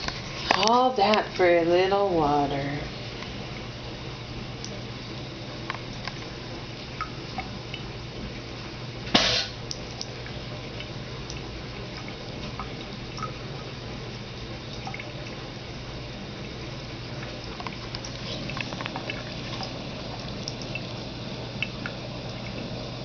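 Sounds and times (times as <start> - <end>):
water drips: 4.6 - 4.9, 5.6 - 8.5, 9.6 - 23.0
tap water trickling into sink: 17.2 - 20.9.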